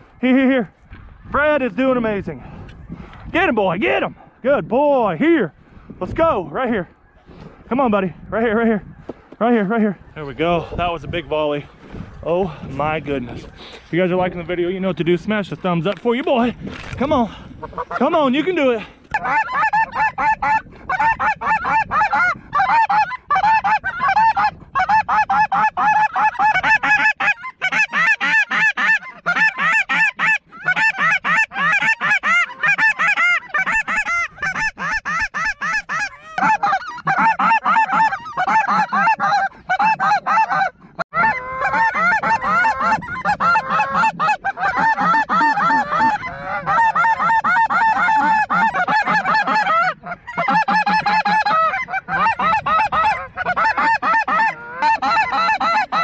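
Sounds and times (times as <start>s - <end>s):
geese honking: 13.2s - 56.0s.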